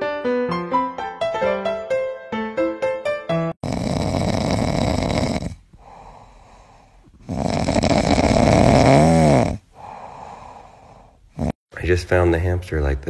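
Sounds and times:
loud snoring: 3.5s - 11.6s.

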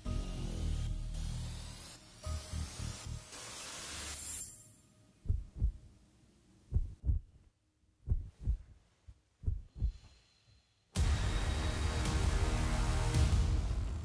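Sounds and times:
heartbeat thumps: 5.2s - 5.9s, 6.7s - 7.4s, 8.0s - 8.7s, 9.4s - 10.0s
loud dense music: 11.0s - 14.0s.

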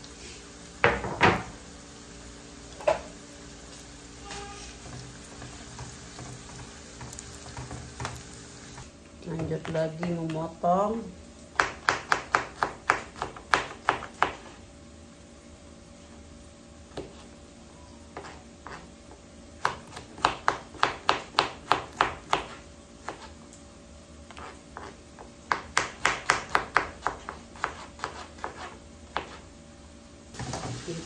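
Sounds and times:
knife chopping on wooden board: 11.6s - 14.6s, 19.6s - 23.3s, 24.3s - 29.4s.

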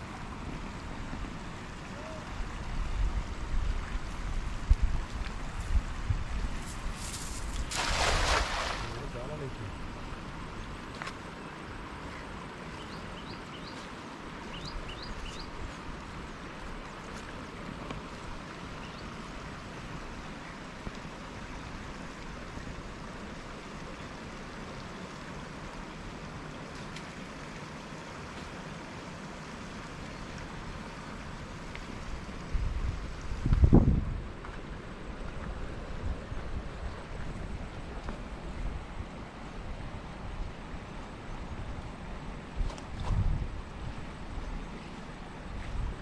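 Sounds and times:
outdoor hiss: 6.6s - 9.6s.

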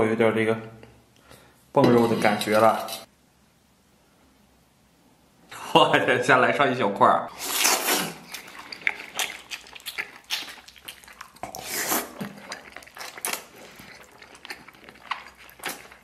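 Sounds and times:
wet chewing sounds: 7.4s - 16.0s.

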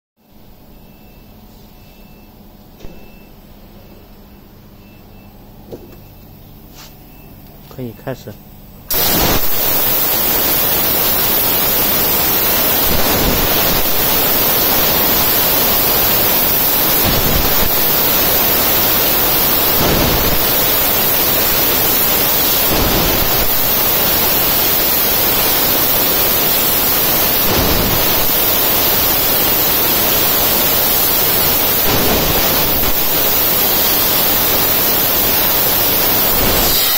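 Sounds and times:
laser cutting machine hiss: 8.9s - 36.9s.

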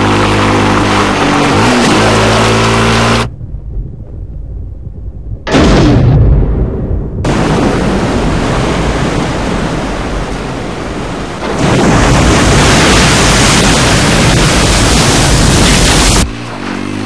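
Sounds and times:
wind rushing: 2.5s - 16.4s
surging water: 7.3s - 17.0s.

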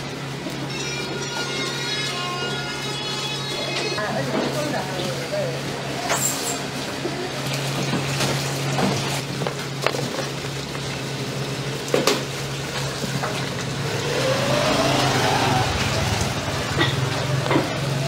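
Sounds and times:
faint rising whine: 13.7s - 18.0s.

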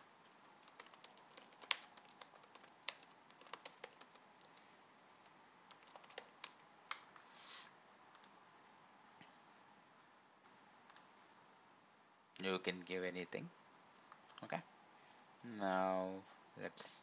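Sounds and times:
keyboard typing: 0.2s - 4.6s, 5.2s - 7.1s, 8.1s - 8.4s.

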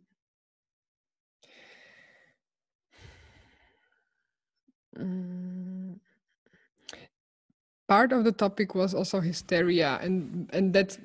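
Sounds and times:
woman humming mmm: 4.9s - 6.1s
woman sighing: 5.0s - 6.0s.

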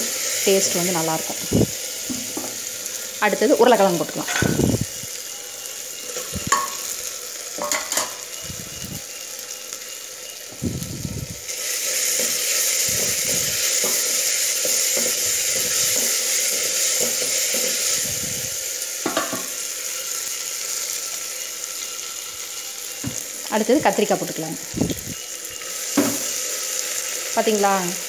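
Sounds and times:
food sizzling in hot oil: 0.0s - 28.0s
spoon stirring and knocking pan: 2.1s - 2.6s, 4.2s - 4.6s, 6.2s - 6.9s, 7.6s - 8.3s, 12.0s - 18.0s, 19.0s - 19.6s, 25.9s - 26.4s.

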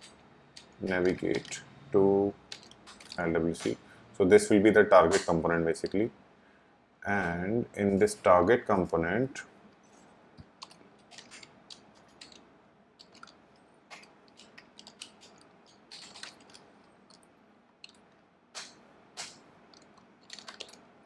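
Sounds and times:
keyboard typing clicks: 0.0s - 1.6s, 2.5s - 3.8s, 10.4s - 12.4s, 13.0s - 20.8s.

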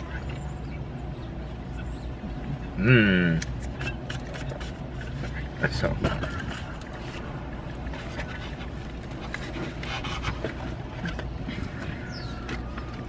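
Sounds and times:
car cabin engine hum: 0.0s - 13.0s
chewing and breathing: 6.3s - 13.0s.

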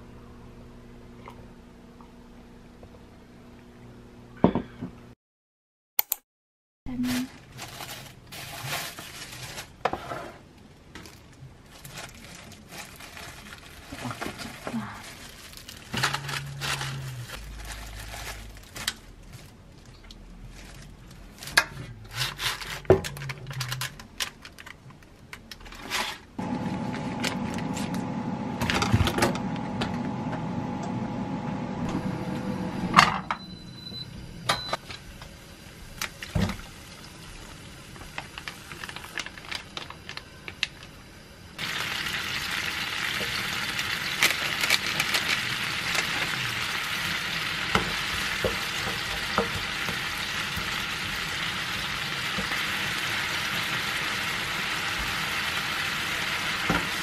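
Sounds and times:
air fryer fan hum: 26.4s - 57.0s.

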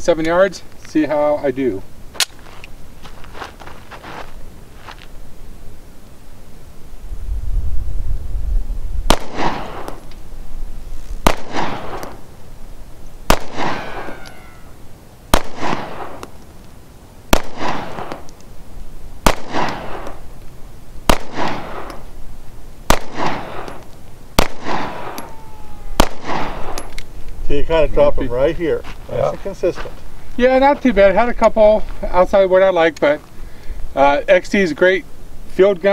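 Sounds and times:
pistol shots with echo: 9.1s - 10.0s, 11.2s - 12.2s, 13.3s - 14.5s, 15.3s - 16.3s, 17.3s - 18.3s, 19.2s - 20.2s, 21.1s - 22.0s, 22.9s - 23.8s, 24.4s - 27.0s.

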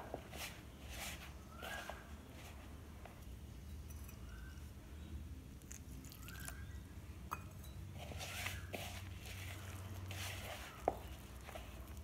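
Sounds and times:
hand kneading dough in a bowl: 0.0s - 4.1s, 7.9s - 12.0s.

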